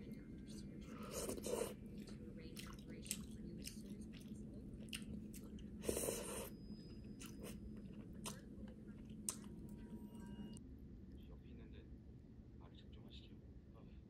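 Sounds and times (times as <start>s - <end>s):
person chewing food: 0.9s - 10.0s.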